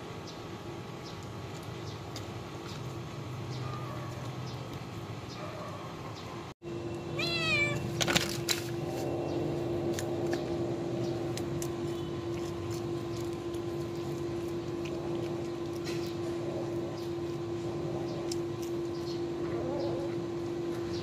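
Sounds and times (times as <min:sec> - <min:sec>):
kitten meowing: 0:07.2 - 0:07.8
kittens chewing shells clicking: 0:09.8 - 0:19.6.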